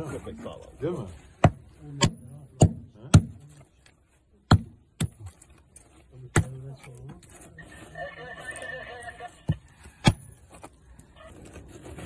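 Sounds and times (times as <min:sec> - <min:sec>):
metal hand tool striking earth: 0:04.5 - 0:05.6, 0:10.0 - 0:10.4.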